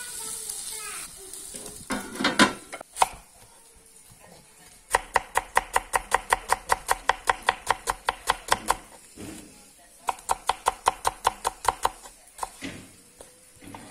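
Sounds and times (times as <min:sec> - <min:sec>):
knife slicing onion on board: 0:04.9 - 0:13.3.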